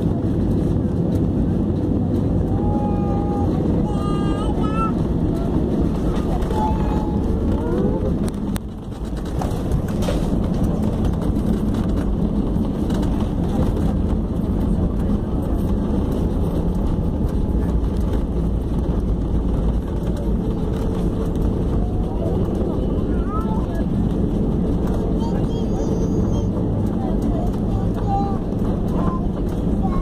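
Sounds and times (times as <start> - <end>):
airliner cabin rumble: 0.0 - 30.0.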